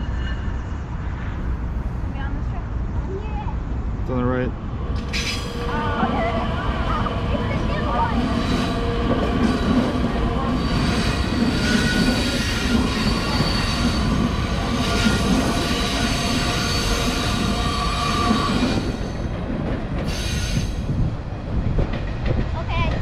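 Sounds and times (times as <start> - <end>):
train rumble: 0.0 - 23.0
train wheels squealing: 5.0 - 5.9, 8.2 - 8.9, 10.4 - 19.3, 20.0 - 20.9.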